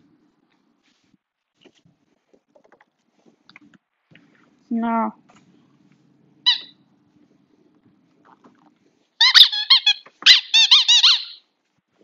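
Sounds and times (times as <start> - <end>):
squeaky dog toy squeaking: 6.4 - 6.8, 9.2 - 11.5.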